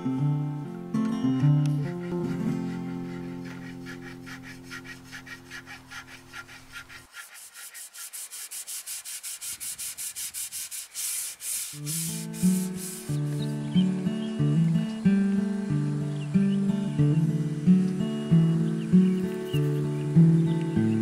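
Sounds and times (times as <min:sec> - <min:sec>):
acoustic guitar music: 0:00.0 - 0:05.6, 0:11.6 - 0:21.0
knife scraping wood: 0:01.8 - 0:13.5.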